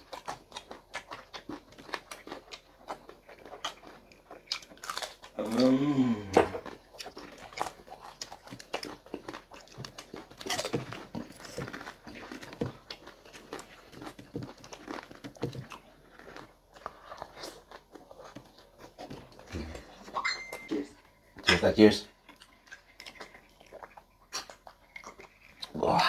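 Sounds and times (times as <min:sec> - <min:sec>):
people chewing food: 0:00.0 - 0:26.0.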